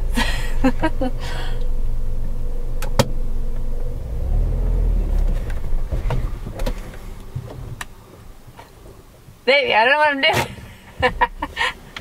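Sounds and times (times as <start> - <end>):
car engine revving: 0.0 - 9.1.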